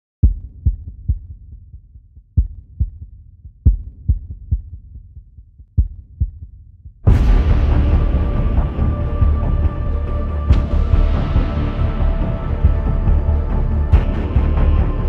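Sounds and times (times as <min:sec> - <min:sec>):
heartbeat thumps: 0:00.2 - 0:09.5.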